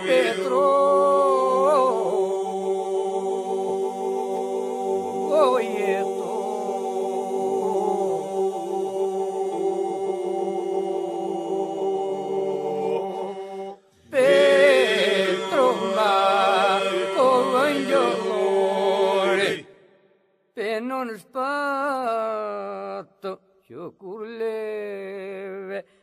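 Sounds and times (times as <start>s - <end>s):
voices singing a cappella: 0.0s - 20.0s.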